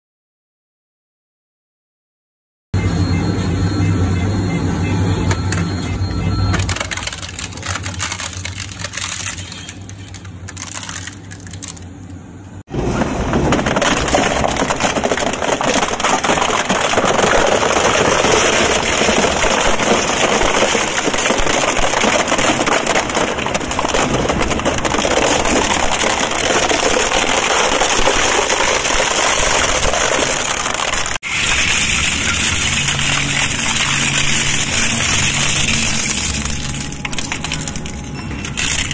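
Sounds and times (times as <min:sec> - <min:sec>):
plastic cracking and crunching: 0:06.6 - 0:12.2, 0:13.0 - 0:38.9
shredder machine hum: 0:12.7 - 0:38.9.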